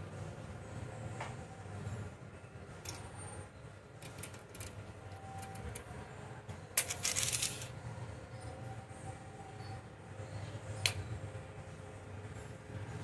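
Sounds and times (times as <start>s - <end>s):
tape blade rattling scrape: 6.8s - 7.7s
tape measure clicks: 6.8s - 7.7s.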